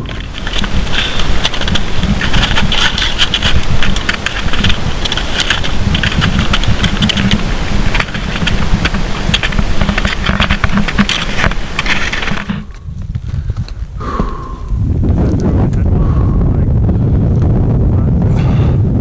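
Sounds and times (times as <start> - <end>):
skis crunching on snow: 0.0 - 14.5
wind buffeting microphone: 0.0 - 19.0.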